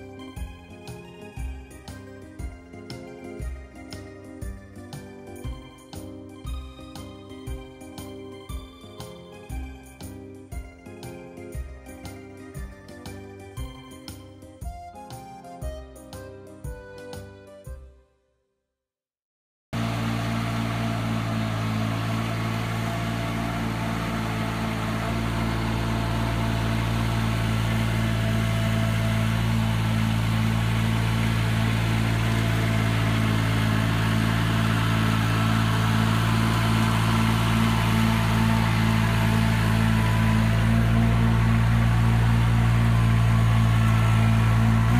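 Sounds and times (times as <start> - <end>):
mini loader engine running: 19.8 - 44.9.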